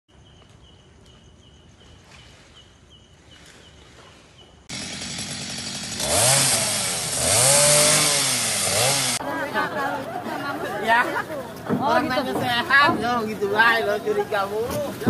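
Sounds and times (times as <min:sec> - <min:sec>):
chainsaw cutting wood: 0:04.7 - 0:09.2.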